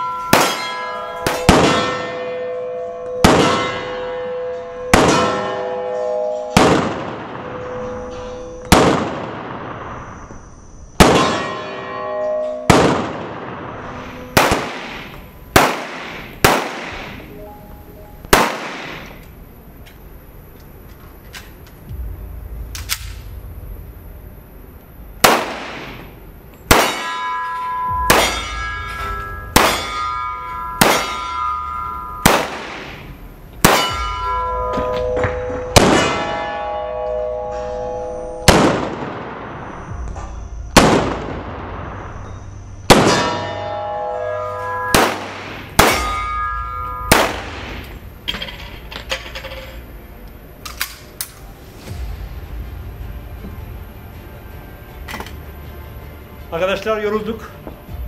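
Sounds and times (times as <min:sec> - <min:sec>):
steady ringing tones: 0:00.0 - 0:38.5, 0:39.2 - 0:58.0
pistol shots echoing indoors: 0:03.2 - 0:04.1, 0:04.8 - 0:05.9, 0:06.5 - 0:07.6, 0:14.4 - 0:17.2, 0:18.3 - 0:19.2, 0:25.2 - 0:26.0, 0:26.7 - 0:27.2, 0:30.8 - 0:33.0, 0:38.4 - 0:39.9, 0:42.9 - 0:43.6, 0:44.9 - 0:46.2, 0:47.1 - 0:47.9.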